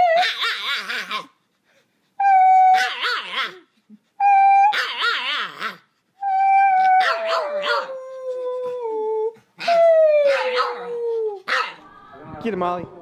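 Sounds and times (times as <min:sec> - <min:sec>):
dog howling: 0:02.2 - 0:03.6, 0:04.3 - 0:12.2.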